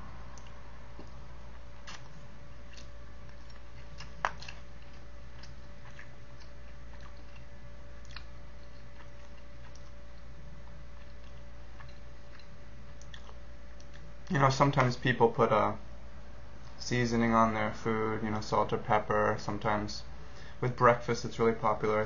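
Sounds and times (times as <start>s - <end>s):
room hum: 0.0s - 22.0s
man chewing: 0.3s - 14.2s.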